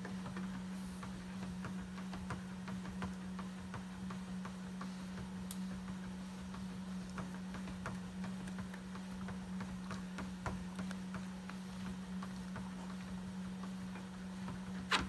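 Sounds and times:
dog claws clicking on treadmill: 0.0 - 15.0
treadmill motor hum: 0.0 - 15.0.

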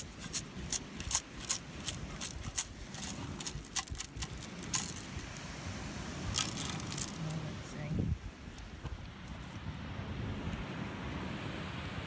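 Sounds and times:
pebbles rattling against wire mesh: 0.0 - 5.2, 6.3 - 7.4.

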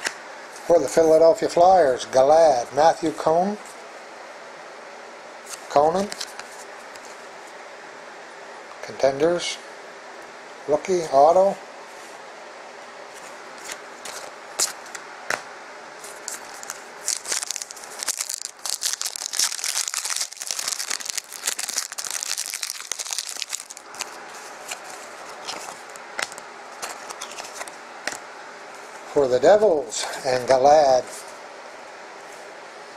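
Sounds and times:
cards being handled: 5.5 - 7.2, 13.1 - 15.4, 16.0 - 28.2
wrapper tearing and crinkling: 16.3 - 27.6.

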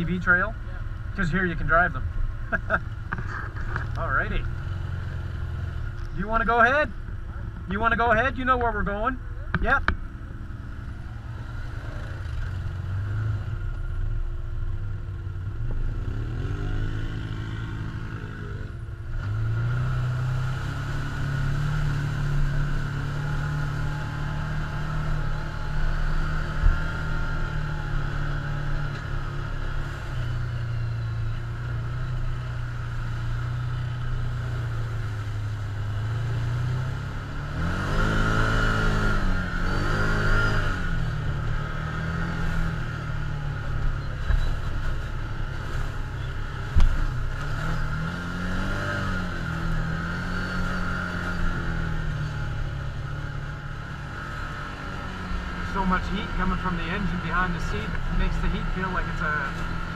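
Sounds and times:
off-road vehicle engine revving: 15.4 - 59.9.

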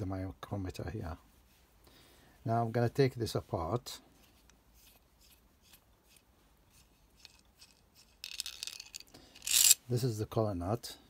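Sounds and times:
nut spinning along thread: 4.2 - 9.8
small metal parts clicking: 6.8 - 9.8.

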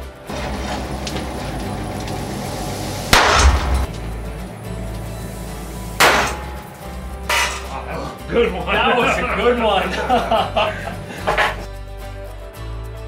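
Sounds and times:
hammer striking hot iron on anvil: 3.1 - 4.0, 6.0 - 7.7.

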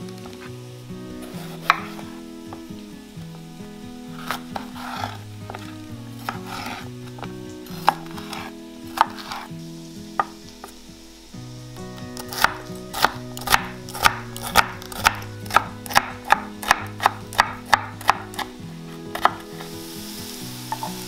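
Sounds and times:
soft background music: 0.0 - 21.0
knife scraping: 1.2 - 2.2, 4.1 - 9.5, 12.1 - 19.8
knife chopping on cutting board: 1.3 - 2.1, 4.2 - 9.5, 12.2 - 18.5, 19.1 - 19.5.

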